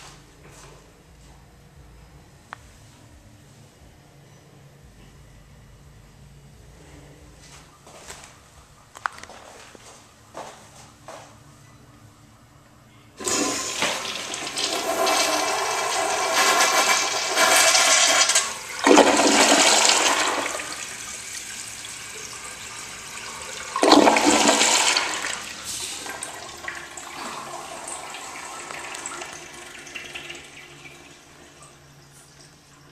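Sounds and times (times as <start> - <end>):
toilet flushing water rush: 13.2 - 32.9.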